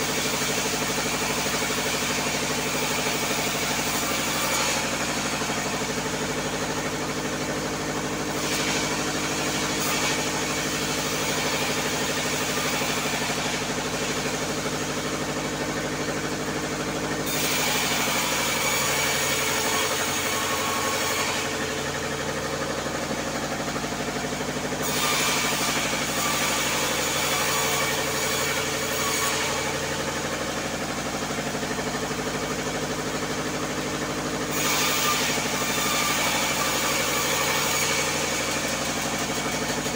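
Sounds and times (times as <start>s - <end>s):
saw blade hissing in wood: 0.0s - 15.5s, 34.4s - 39.8s
bandsaw mill engine running: 0.0s - 39.9s.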